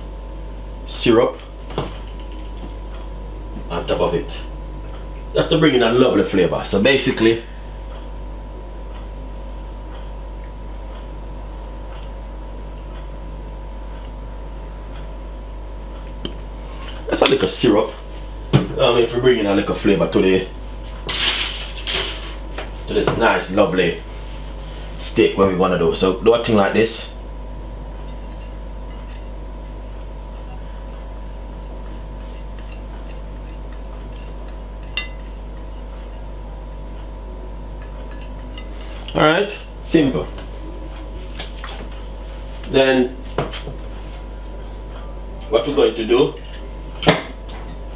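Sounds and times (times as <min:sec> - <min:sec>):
low electrical hum: 0:00.0 - 0:47.9.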